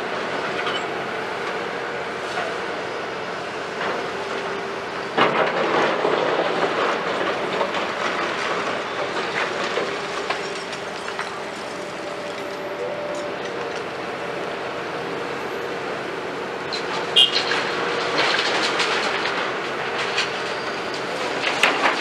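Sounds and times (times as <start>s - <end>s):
excavator running: 0.0s - 22.0s
concrete rubble crunching and clattering: 5.2s - 12.5s, 17.3s - 22.0s.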